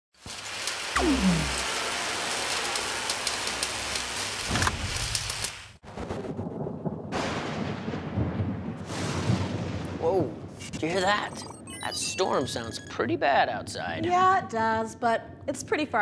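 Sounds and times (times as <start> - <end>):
heavy rain hissing: 0.2 - 5.8
thunder rumbling: 5.8 - 11.1.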